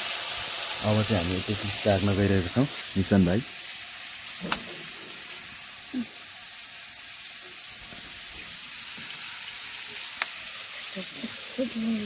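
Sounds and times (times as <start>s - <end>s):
food frying in a pan: 0.0s - 12.0s.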